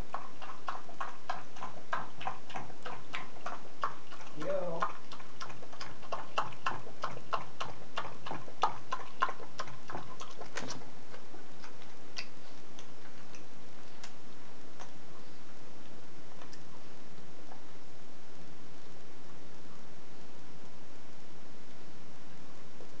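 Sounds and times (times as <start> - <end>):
dog lapping liquid: 0.0 - 16.9.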